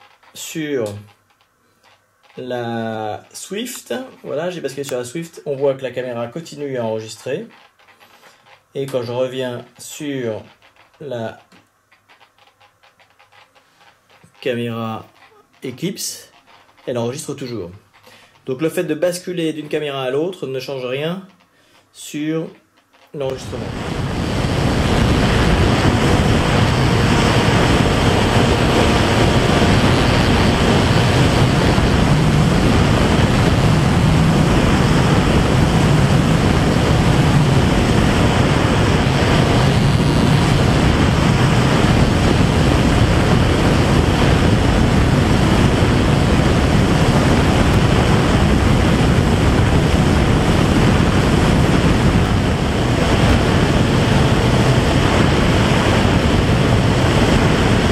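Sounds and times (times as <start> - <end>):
wind rushing over microphone: 23.3 - 57.9.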